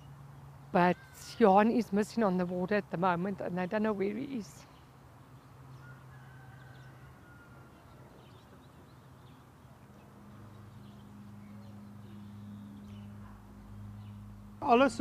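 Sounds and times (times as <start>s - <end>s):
bird chirps: 4.6s - 14.3s.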